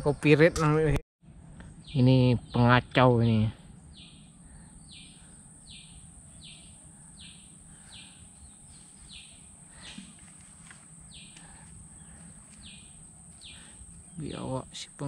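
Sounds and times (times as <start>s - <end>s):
high-pitched insect drone: 3.3s - 15.0s.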